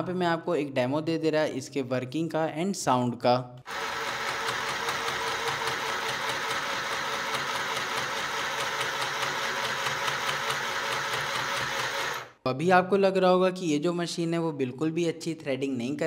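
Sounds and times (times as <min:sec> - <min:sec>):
sewing machine stitching: 0:03.7 - 0:12.4.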